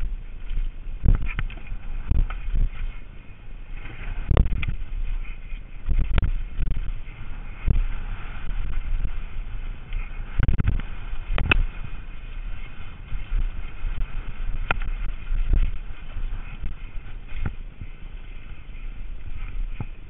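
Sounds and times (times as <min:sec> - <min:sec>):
mountain bike rattling over rocks: 0:00.0 - 0:20.0
wheels knocking on rocks: 0:00.0 - 0:20.0
wind buffeting microphone: 0:00.0 - 0:20.0.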